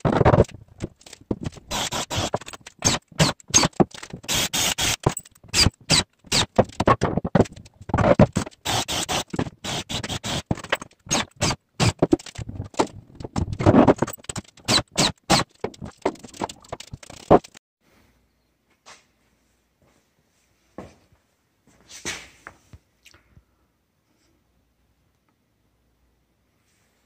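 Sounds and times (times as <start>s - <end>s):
drill driving screws into wood: 1.7s - 6.7s, 8.3s - 12.3s, 13.8s - 15.6s.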